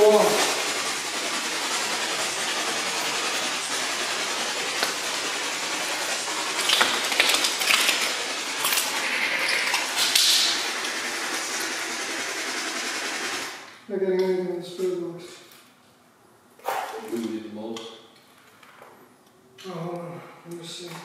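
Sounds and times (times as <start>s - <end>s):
static hiss: 0.0s - 13.8s.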